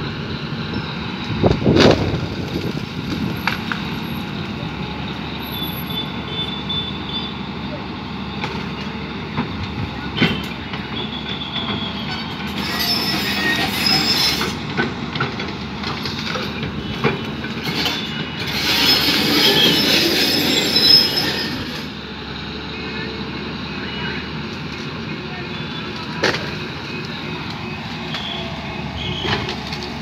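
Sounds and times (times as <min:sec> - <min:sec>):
high metallic squealing: 0:11.1 - 0:14.8, 0:17.6 - 0:22.0.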